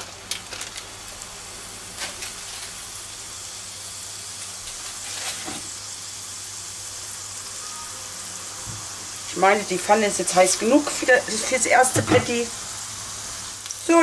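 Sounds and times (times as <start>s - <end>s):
oil crackles: 0.0s - 6.5s
burger sizzling in oil: 0.0s - 14.0s.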